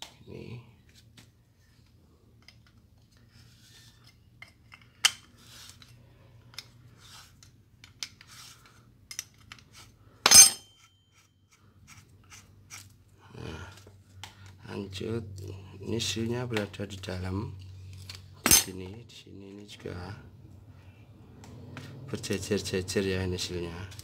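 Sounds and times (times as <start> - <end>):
loud ringing metal clank: 10.3 - 10.8.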